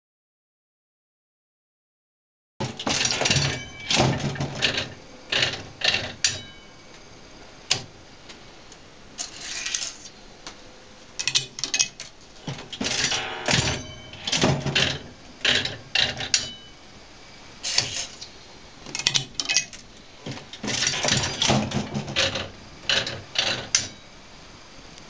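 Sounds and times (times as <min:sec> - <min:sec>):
slot machine mechanism clattering: 0:02.6 - 0:06.6, 0:09.2 - 0:10.1, 0:11.2 - 0:16.7, 0:17.6 - 0:18.3, 0:19.0 - 0:19.9, 0:20.6 - 0:24.0.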